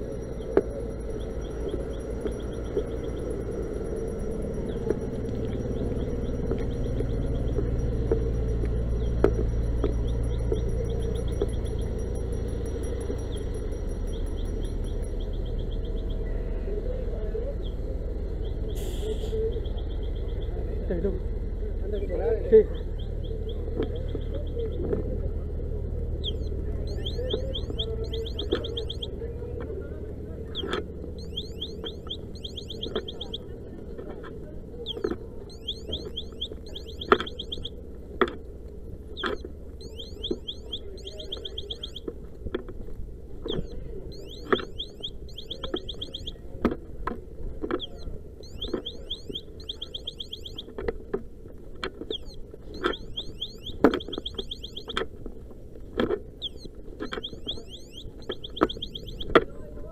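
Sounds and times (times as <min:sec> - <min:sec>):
electronic alarm chirping: 0:00.0 - 0:16.6, 0:26.2 - 0:29.2, 0:30.5 - 0:33.7, 0:34.8 - 0:37.8, 0:39.1 - 0:42.1, 0:43.4 - 0:46.5, 0:47.7 - 0:50.8, 0:52.0 - 0:55.1, 0:56.3 - 0:59.4
low rumble: 0:00.0 - 0:59.9.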